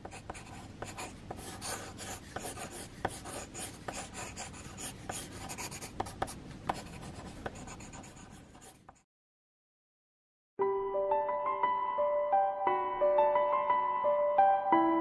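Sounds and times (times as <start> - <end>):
pencil lead tapping: 0.0 - 9.0
pencil sketching on paper: 0.0 - 9.0.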